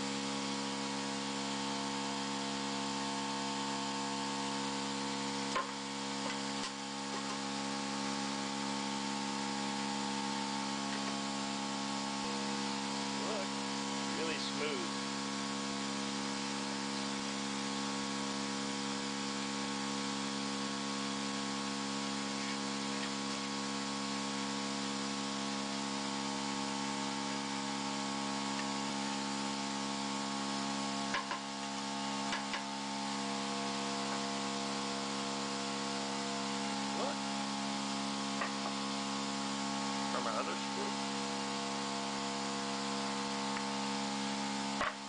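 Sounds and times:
electrical hum: 0:02.2 - 0:18.1.

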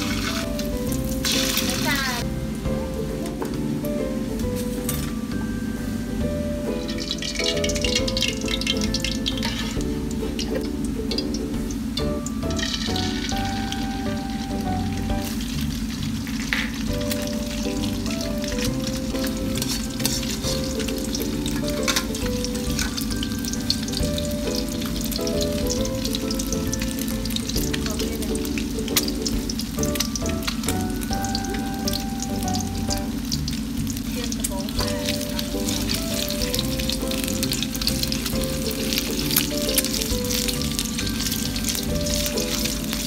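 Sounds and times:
oil crackles and pops: 0:00.0 - 0:02.2, 0:06.9 - 0:11.3, 0:15.2 - 0:43.0
egg sizzling in hot oil: 0:00.0 - 0:02.4, 0:06.7 - 0:43.0
background music: 0:00.0 - 0:43.0.

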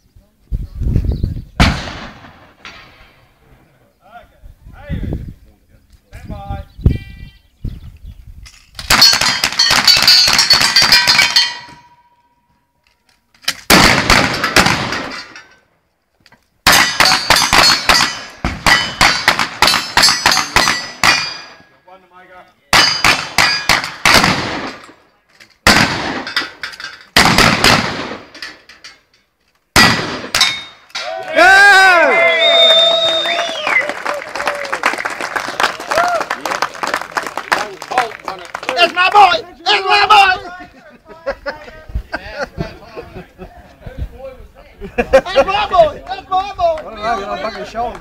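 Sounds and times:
bullets clanging off steel targets: 0:08.5 - 0:12.2, 0:14.3 - 0:15.7, 0:16.7 - 0:21.6, 0:22.8 - 0:24.0, 0:26.2 - 0:27.2, 0:28.2 - 0:31.1.

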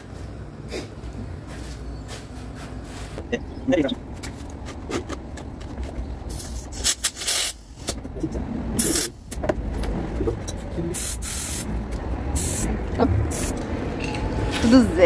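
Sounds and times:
compressed air hissing: 0:06.3 - 0:07.9, 0:10.9 - 0:11.7, 0:12.4 - 0:12.7, 0:13.3 - 0:13.6
steady low rumble: 0:07.6 - 0:15.0.

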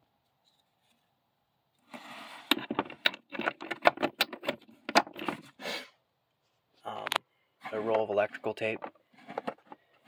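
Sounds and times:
metal sockets clicking and clattering: 0:02.5 - 0:05.4.

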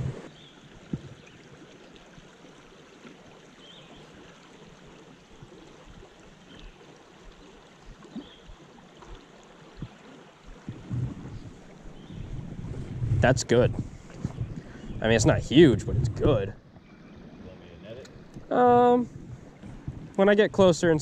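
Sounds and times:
creek water running: 0:00.0 - 0:21.0
soft thumps: 0:09.8 - 0:14.7.

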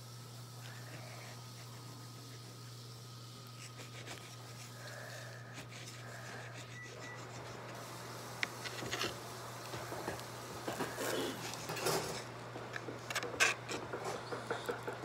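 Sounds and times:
steady low hum: 0:00.0 - 0:15.0
utensils and dishes clattering: 0:08.8 - 0:12.3.

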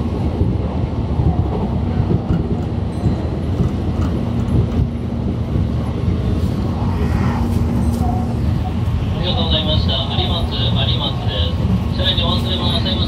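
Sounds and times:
train wheels rumbling on track: 0:00.0 - 0:13.0
low hum: 0:04.8 - 0:09.4.

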